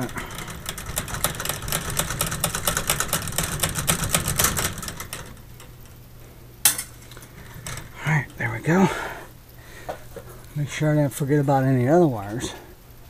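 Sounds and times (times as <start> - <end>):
wire connectors clicking and rattling: 0.0 - 6.0, 6.6 - 8.8
steady low hum: 0.0 - 13.0.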